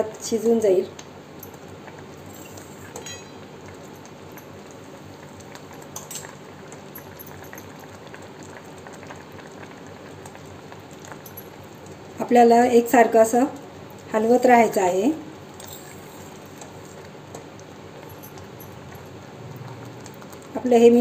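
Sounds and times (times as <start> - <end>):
syrup bubbling and crackling: 1.0 - 12.2, 15.3 - 21.0
spoon clinking against pan: 2.4 - 3.5.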